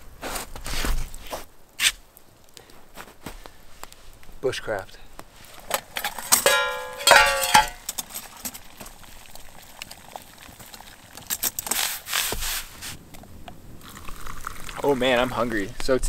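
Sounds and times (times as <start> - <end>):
metal clinking with ringing tone: 6.0 - 8.0.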